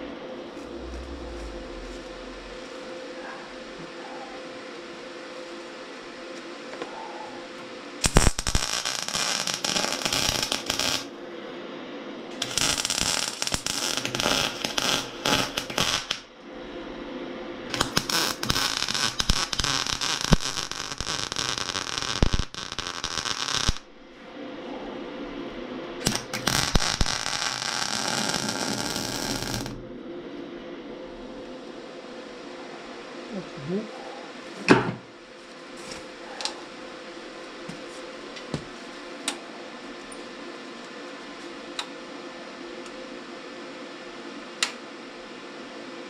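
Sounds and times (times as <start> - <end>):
welding arc crackling and sizzling: 0.0 - 3.8, 8.0 - 11.1, 12.4 - 16.3, 17.7 - 24.2, 26.0 - 29.8
steady low hum: 0.0 - 8.7, 10.0 - 21.4, 22.0 - 46.0.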